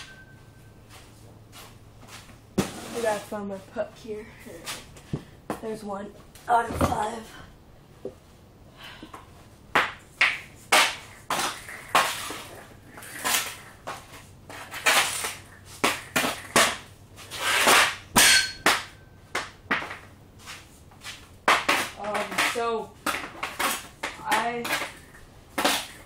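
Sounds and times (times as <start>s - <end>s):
puck scraping rattle: 2.1s - 3.4s, 10.6s - 19.0s, 19.7s - 26.0s
hockey stick hitting puck: 9.8s - 12.6s, 13.2s - 20.1s, 21.4s - 26.0s.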